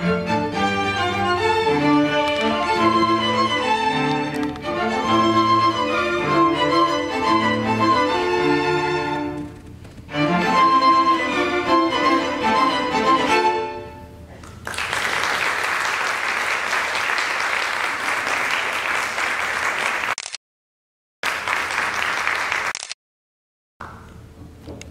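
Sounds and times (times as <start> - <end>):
string quartet chord: 0.0 - 9.4, 10.1 - 14.1
audience applause: 14.5 - 20.2, 21.2 - 22.8.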